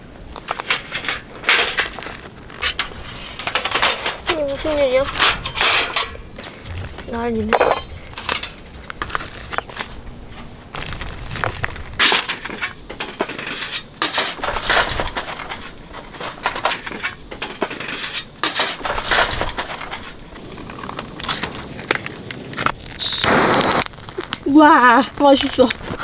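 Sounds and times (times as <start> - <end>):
metal sheet rattling and scraping: 0.5 - 9.5, 10.9 - 20.2.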